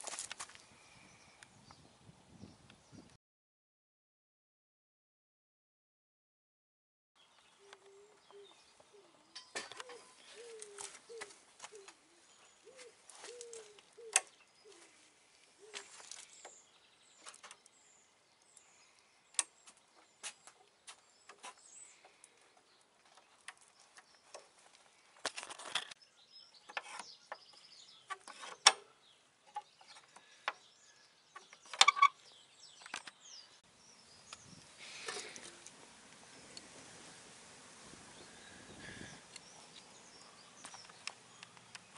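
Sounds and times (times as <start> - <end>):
small birds chirping: 7.2 - 37.2, 37.8 - 41.9
pigeon cooing: 7.6 - 14.9.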